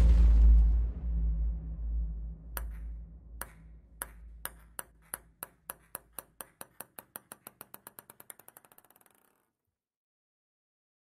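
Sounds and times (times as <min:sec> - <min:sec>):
low rumble: 0:00.0 - 0:04.4
table tennis ball bouncing: 0:02.6 - 0:09.5.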